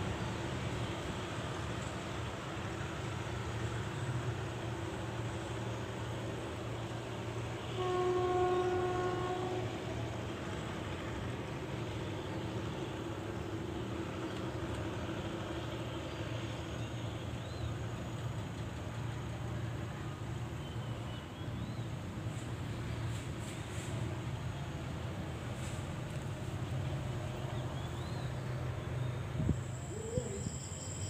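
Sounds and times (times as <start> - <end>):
locomotive horn blast: 7.6 - 9.9.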